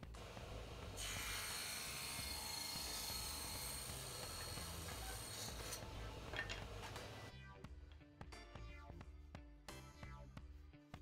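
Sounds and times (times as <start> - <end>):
table saw cutting wood: 0.2 - 5.9.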